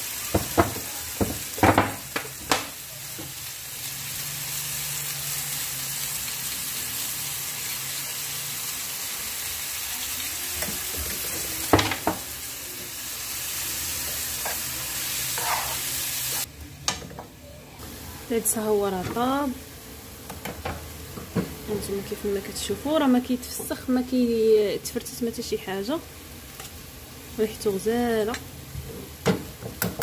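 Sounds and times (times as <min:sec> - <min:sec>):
vegetables sizzling in oil: 0:00.0 - 0:16.5, 0:17.8 - 0:30.0
metal spoon scraping pan: 0:14.4 - 0:16.0.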